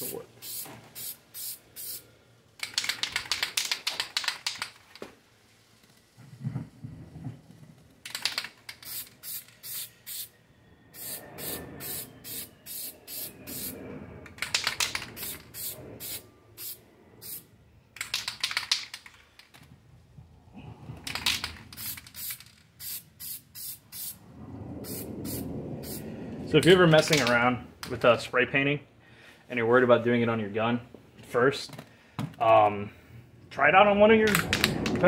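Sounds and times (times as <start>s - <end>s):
spray can spraying: 0.4s - 2.0s, 8.1s - 10.3s, 11.0s - 13.7s, 14.5s - 17.4s, 21.3s - 24.2s, 24.9s - 26.0s.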